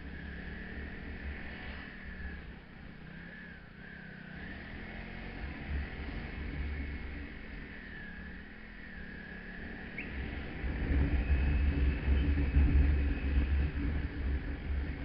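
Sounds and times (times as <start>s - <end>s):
motorcycle engine running: 0.0s - 15.0s
wind rumble on microphone: 5.4s - 15.0s.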